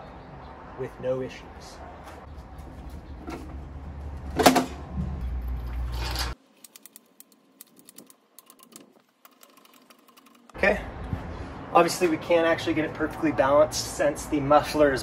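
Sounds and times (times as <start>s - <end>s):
loud metallic clunk: 4.3s - 4.9s.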